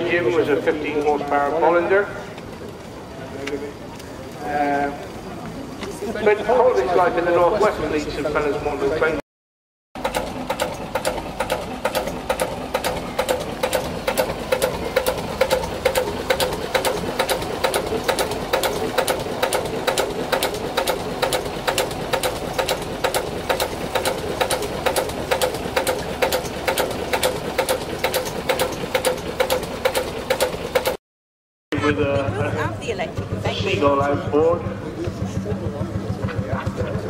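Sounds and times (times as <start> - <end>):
boat engine knocking: 10.0 - 31.0, 31.9 - 37.0.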